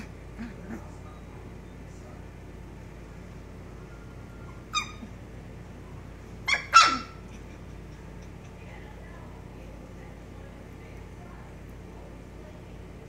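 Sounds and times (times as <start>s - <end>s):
puppies yipping: 4.0s - 5.3s, 6.4s - 8.6s.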